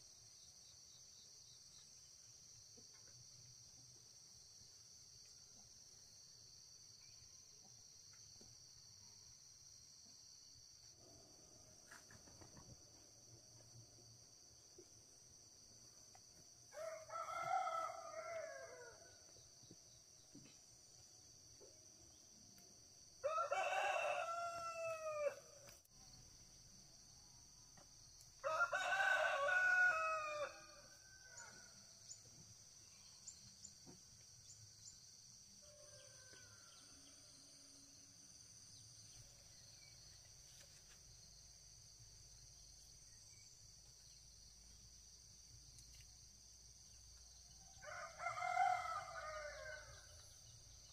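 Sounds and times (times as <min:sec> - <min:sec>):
high insect drone: 0:00.0 - 0:50.9
rooster crowing: 0:16.7 - 0:19.2, 0:23.2 - 0:25.6, 0:28.4 - 0:31.8, 0:35.6 - 0:37.4, 0:47.7 - 0:50.2.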